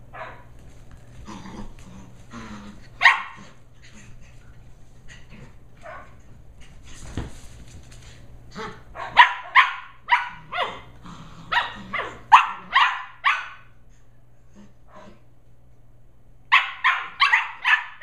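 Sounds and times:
puppy barking: 0.1s - 0.4s, 3.0s - 3.6s, 5.8s - 6.2s, 9.0s - 10.9s, 11.5s - 13.8s, 16.5s - 18.0s.

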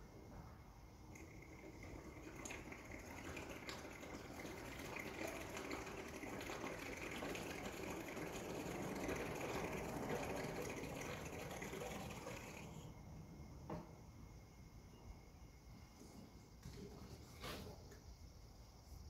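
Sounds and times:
coolant pouring from a jug: 1.1s - 13.0s.

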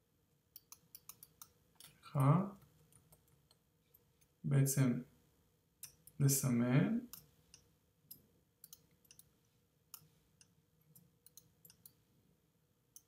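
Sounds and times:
computer mouse clicks: 0.5s - 1.9s, 8.6s - 9.3s, 11.2s - 12.0s.

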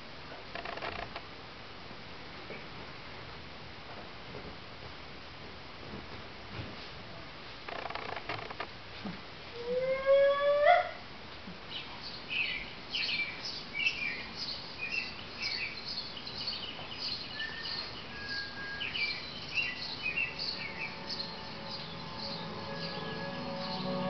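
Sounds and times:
bird chirping: 11.7s - 24.0s.

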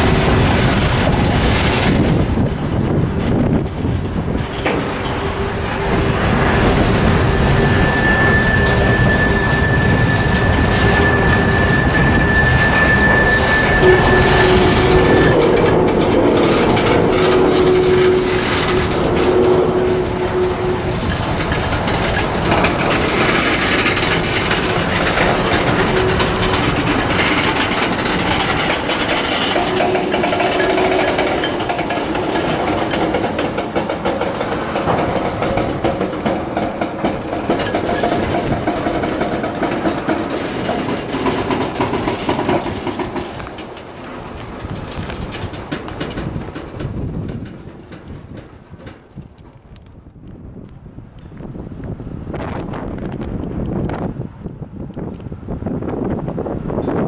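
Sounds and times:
train wheels rumbling on rails: 0.0s - 57.0s
high wheel squeal: 3.8s - 45.1s.

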